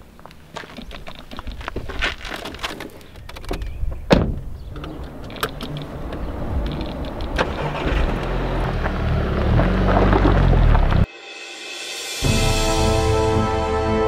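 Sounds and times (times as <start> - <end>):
car door shutting: 4.1 - 8.8
car engine starting and running: 4.6 - 11.1.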